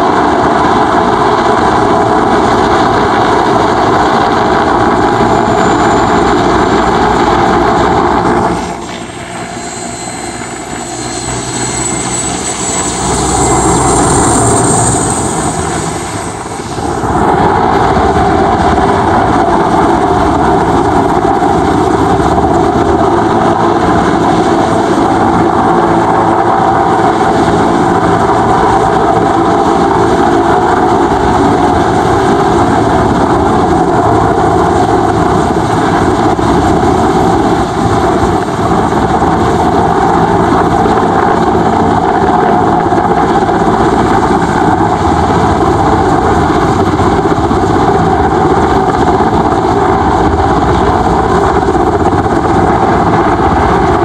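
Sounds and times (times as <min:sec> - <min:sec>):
helicopter turbine and rotor noise: 0:00.0 - 0:54.0.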